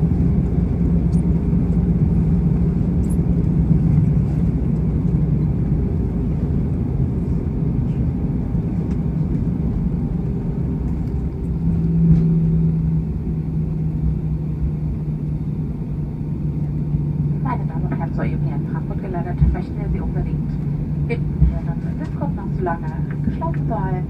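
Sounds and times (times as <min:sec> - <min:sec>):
aircraft cabin rumble: 0:00.0 - 0:24.0
jet engines idling hum: 0:00.0 - 0:24.0.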